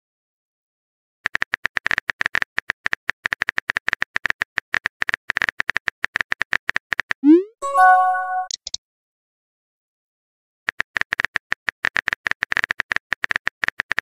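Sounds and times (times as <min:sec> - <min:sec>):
short chime: 0:07.6 - 0:08.5.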